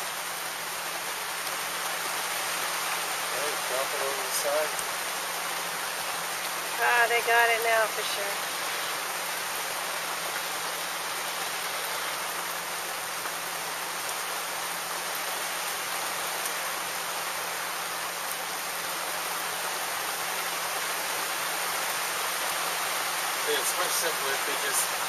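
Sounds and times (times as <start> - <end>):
rain drops ticking: 0.0 - 25.0
rain falling on sea: 0.0 - 25.0.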